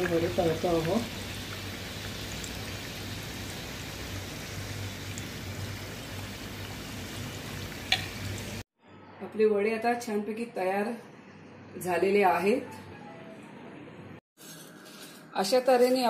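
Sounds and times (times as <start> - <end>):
food sizzling in hot oil: 0.0 - 8.7.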